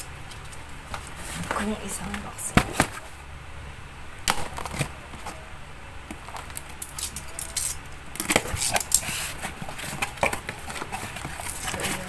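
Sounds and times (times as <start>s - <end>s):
cardboard box being opened: 8.3s - 12.0s.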